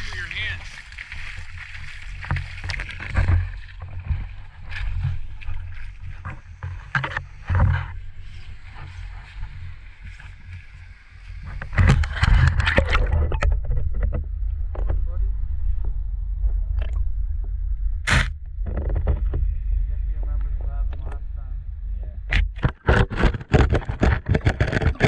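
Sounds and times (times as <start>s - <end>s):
splashing and handling noise: 0.0s - 14.1s, 22.4s - 25.0s
water lapping against camera housing: 0.0s - 14.2s, 22.3s - 25.0s
steady low rumble: 0.0s - 25.0s.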